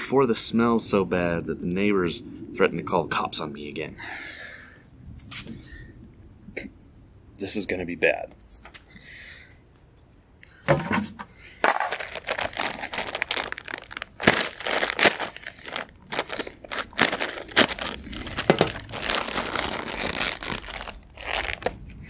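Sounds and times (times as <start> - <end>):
plastic bag crinkling: 11.6 - 22.0.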